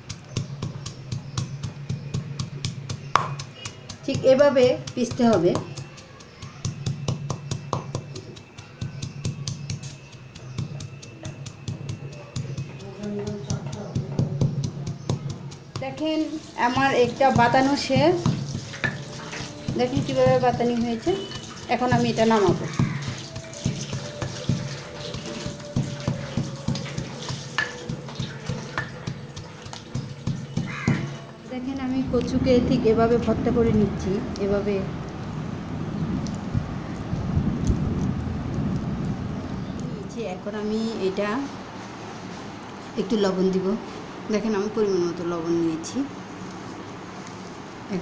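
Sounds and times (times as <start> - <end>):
pestle pounding in clay mortar: 0.0 - 31.8.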